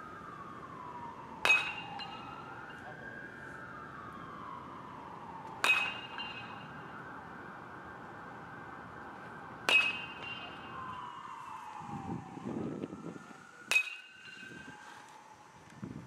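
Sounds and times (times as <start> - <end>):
steady whine: 0.0 - 15.8
bat hitting baseball: 1.4 - 2.8, 5.6 - 6.7, 9.6 - 10.9, 13.7 - 14.7.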